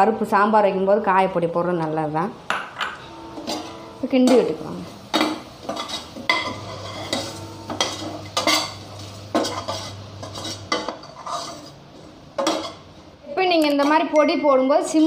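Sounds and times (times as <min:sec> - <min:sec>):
metal spatula scraping a pot: 0:03.1 - 0:12.9.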